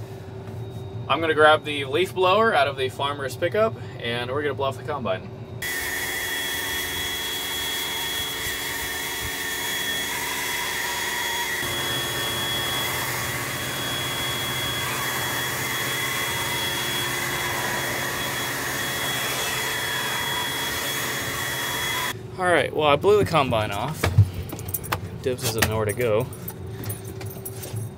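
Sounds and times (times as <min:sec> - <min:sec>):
leaf blower running: 0:05.6 - 0:22.2.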